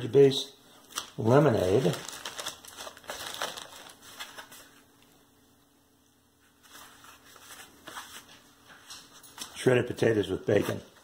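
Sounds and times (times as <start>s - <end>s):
plastic and foil wrappers crinkling: 0.8s - 4.8s.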